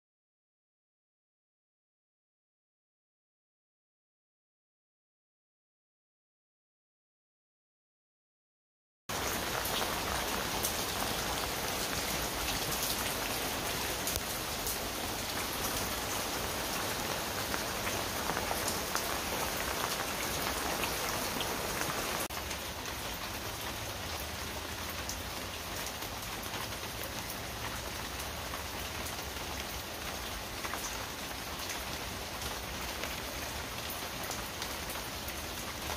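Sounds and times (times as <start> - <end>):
rain on wet paving: 9.1 - 35.9.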